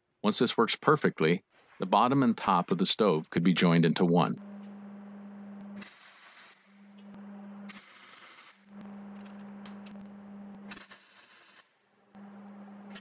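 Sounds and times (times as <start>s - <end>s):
steady low hum: 1.8s - 5.9s, 6.6s - 7.8s, 8.6s - 10.8s, 12.0s - 13.0s
welding arc crackling: 4.4s - 11.6s, 12.2s - 13.0s.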